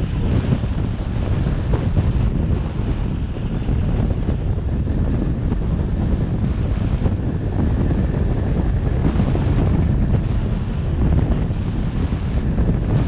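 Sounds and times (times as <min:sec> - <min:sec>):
road noise: 0:00.0 - 0:13.0
wind buffeting microphone: 0:00.0 - 0:13.0.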